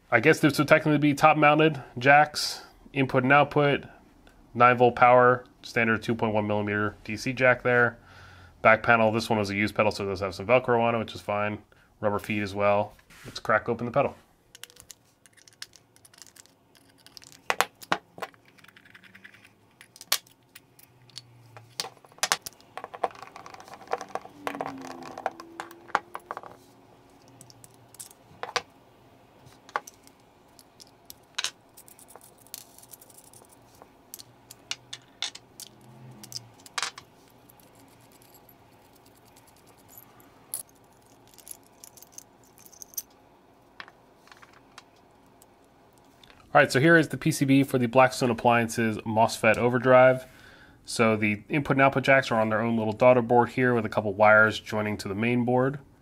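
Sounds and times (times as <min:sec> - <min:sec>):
metal scraping and squeaking: 0:23.7 - 0:26.8.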